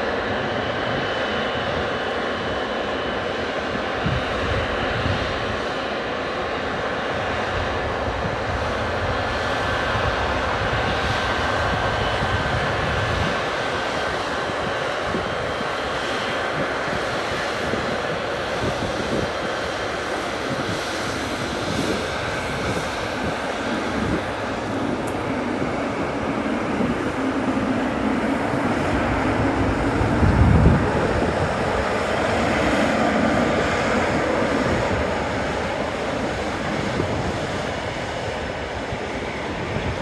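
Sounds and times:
jet engines running: 0:00.0 - 0:40.0.

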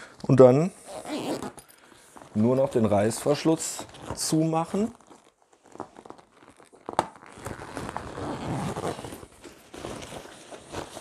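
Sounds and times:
zipper being pulled: 0:00.8 - 0:01.7, 0:05.1 - 0:11.0
fabric rustling: 0:01.0 - 0:11.0.

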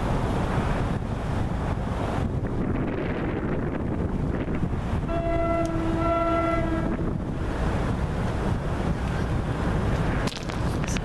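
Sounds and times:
wind buffeting microphone: 0:00.0 - 0:11.0
train air horn: 0:05.0 - 0:07.2.

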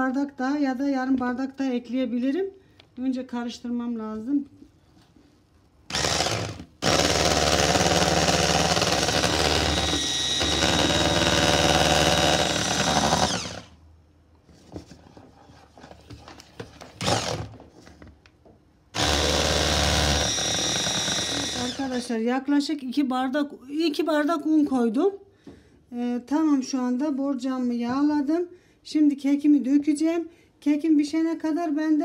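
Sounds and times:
electric hand mixer running: 0:05.9 - 0:13.8, 0:17.0 - 0:17.5, 0:19.0 - 0:22.0.

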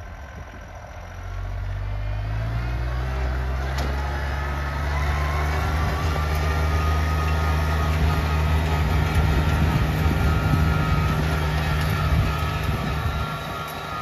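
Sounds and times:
tractor engine revving: 0:00.0 - 0:14.0.

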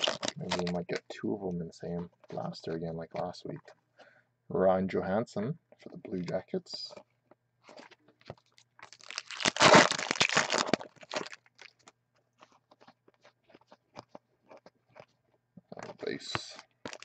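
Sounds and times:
foil wrapper crinkling and tearing: 0:00.0 - 0:01.0, 0:07.6 - 0:13.3, 0:15.9 - 0:17.0.

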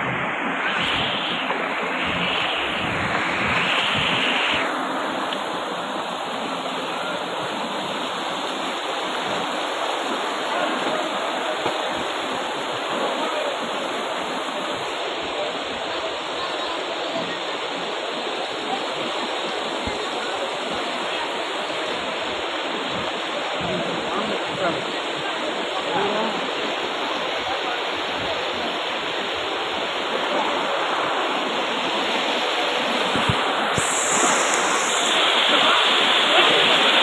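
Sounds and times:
floodwater rushing down a street: 0:00.0 - 0:37.0.

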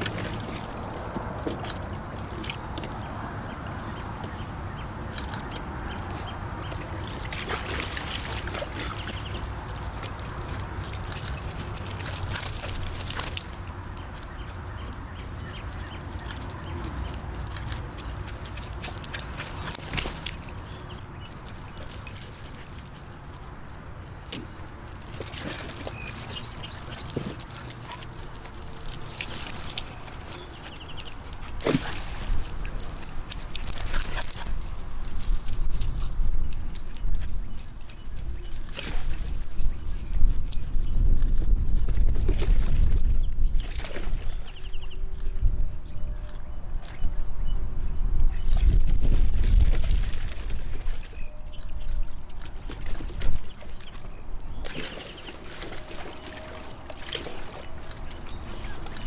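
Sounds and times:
dog collar tags jingling: 0:08.5 - 0:45.3, 0:48.4 - 0:52.1, 0:53.2 - 0:59.0.

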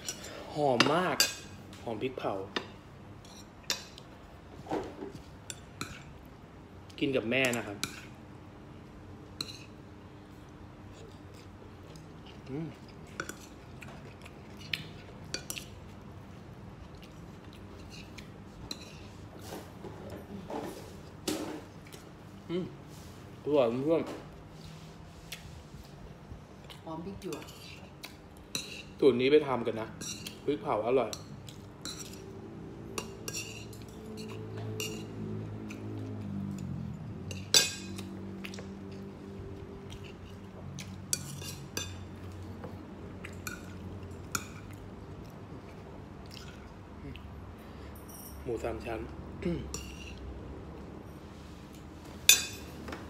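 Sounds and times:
cutlery clinking against plate: 0:52.2 - 0:52.9.

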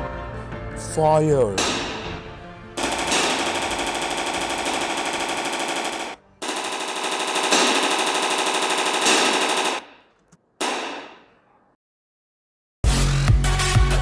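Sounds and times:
automatic gunfire bursts: 0:02.8 - 0:10.0.

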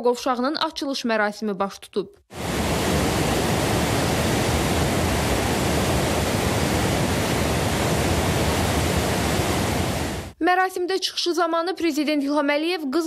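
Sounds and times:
water roaring from dam outlet: 0:02.3 - 0:10.4.

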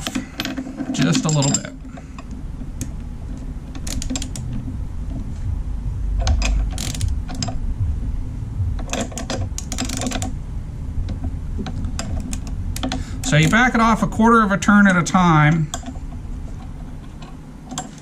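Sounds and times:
low rumble: 0:01.7 - 0:17.7
socket ratchet clicking: 0:03.7 - 0:04.5, 0:06.2 - 0:07.6, 0:08.8 - 0:10.4.

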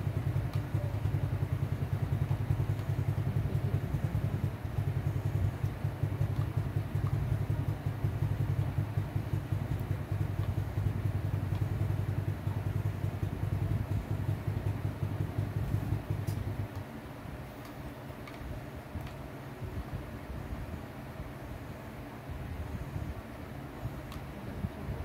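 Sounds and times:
small engine idling: 0:00.0 - 0:18.7.

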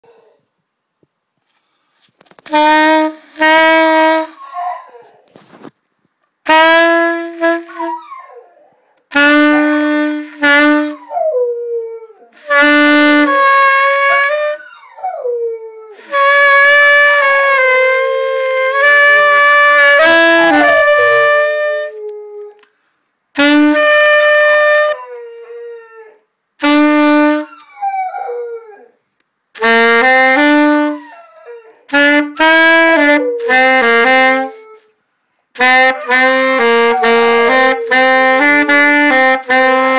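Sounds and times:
saxophone playing held notes: 0:02.4 - 0:04.4, 0:06.5 - 0:08.0, 0:09.1 - 0:11.0, 0:12.4 - 0:14.6, 0:16.0 - 0:22.3, 0:23.4 - 0:25.3, 0:26.6 - 0:27.7, 0:29.6 - 0:31.1, 0:31.9 - 0:34.8, 0:35.6 - 0:39.9
dog howling: 0:20.2 - 0:22.6.

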